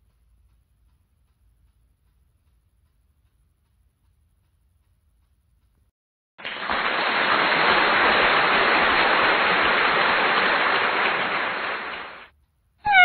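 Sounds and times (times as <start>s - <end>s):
steady rushing hiss: 6.5s - 12.3s.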